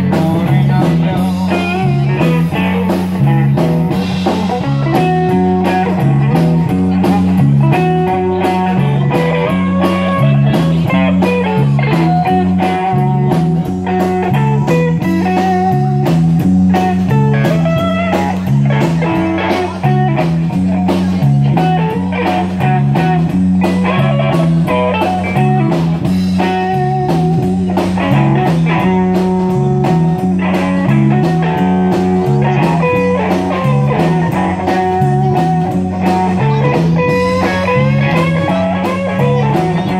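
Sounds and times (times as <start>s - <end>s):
bass guitar: 0.0s - 39.9s
blues guitar lines: 0.0s - 39.9s
drums: 0.0s - 39.9s.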